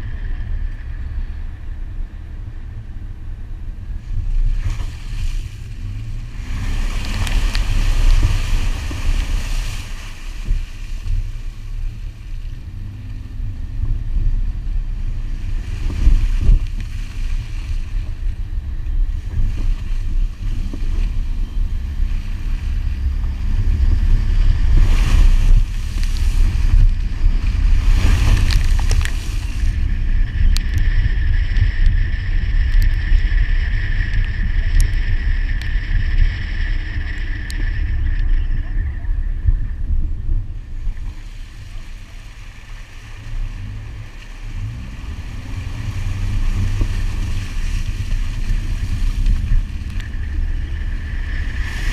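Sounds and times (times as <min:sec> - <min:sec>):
car engine driving off-road: 0:00.0 - 0:51.9
wind buffeting: 0:00.0 - 0:51.9
water splashing: 0:04.5 - 0:12.2.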